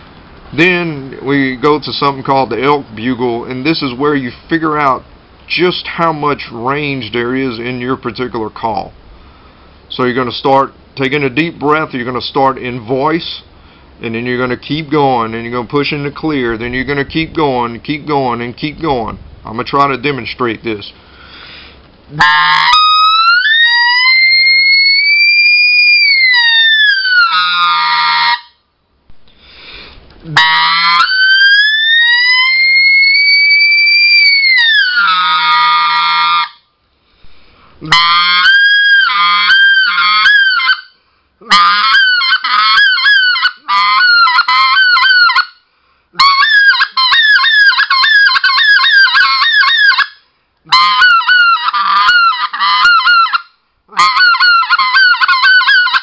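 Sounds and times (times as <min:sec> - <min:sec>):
goose call blown: 0:22.1 - 0:28.6, 0:29.6 - 0:36.7, 0:37.8 - 0:45.6, 0:46.2 - 0:56.0.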